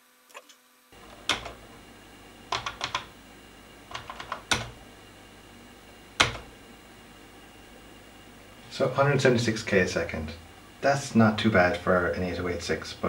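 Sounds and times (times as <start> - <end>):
keyboard keys clicking: 1.1 - 1.6, 2.5 - 3.1, 3.9 - 4.8, 6.2 - 6.5.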